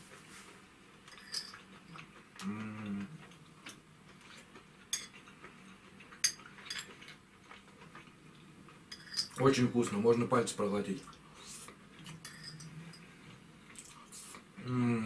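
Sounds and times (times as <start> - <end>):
spoon clinking against bowl: 12.2 - 12.7.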